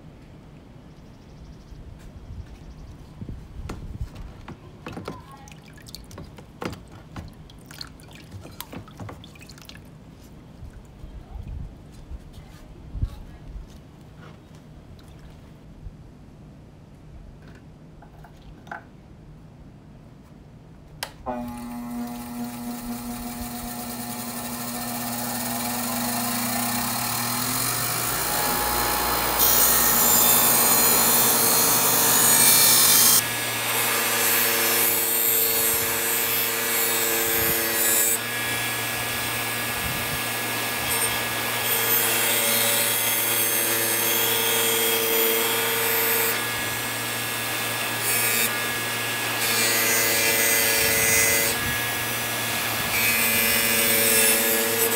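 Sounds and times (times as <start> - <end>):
power tool grinding metal: 21.3 - 54.9.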